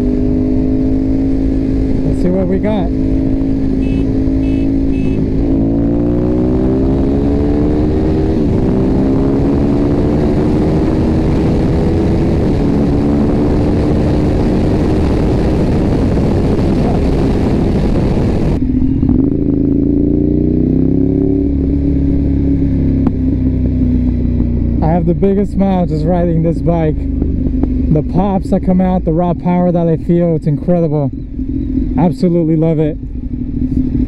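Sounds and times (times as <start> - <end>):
wind on microphone: 0.0 - 19.8
motorcycle engine accelerating: 0.0 - 34.0.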